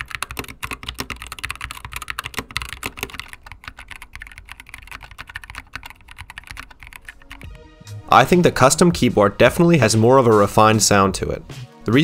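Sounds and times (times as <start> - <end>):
typing on mechanical keyboard: 0.0 - 7.5.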